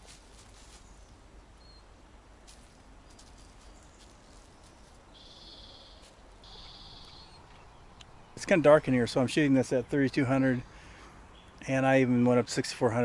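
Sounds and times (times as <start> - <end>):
faint rustles: 0.0 - 8.0
buzzy songbird trills: 3.6 - 8.5.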